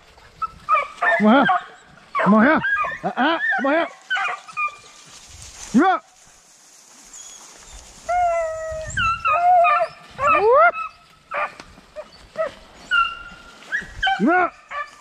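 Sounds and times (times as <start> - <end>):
dogs barking: 0.4 - 4.8, 9.3 - 15.0
dogs yelping: 0.4 - 4.9, 8.1 - 15.0
hounds baying: 0.4 - 5.0, 8.1 - 15.0
dog howling: 8.1 - 13.2.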